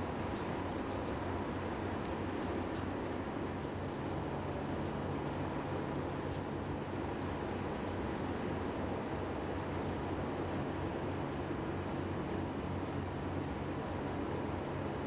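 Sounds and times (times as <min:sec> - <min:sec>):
low roar of large blaze: 0:00.0 - 0:15.0.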